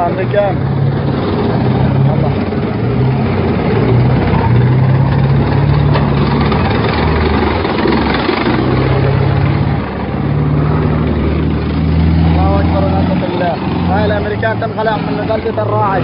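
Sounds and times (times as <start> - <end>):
heavy tank engine running: 0.0 - 16.0
tank tracks rumbling and clattering: 0.0 - 16.0.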